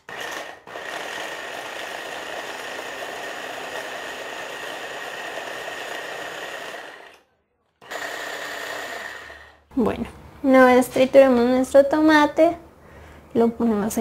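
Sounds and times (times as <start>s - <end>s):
hand blender motor whine: 0.0s - 7.2s, 7.8s - 9.6s.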